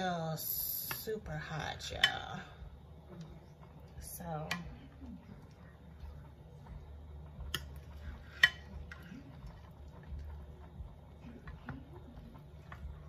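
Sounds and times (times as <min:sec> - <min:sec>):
low steady hum: 0:00.0 - 0:13.0
utensils tapping ceramic dish: 0:08.3 - 0:09.0.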